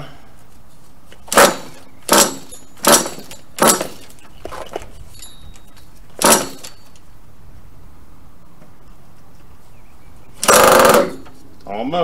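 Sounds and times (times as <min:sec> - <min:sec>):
engine pull-starter rasping: 0:01.2 - 0:07.0, 0:10.4 - 0:11.4.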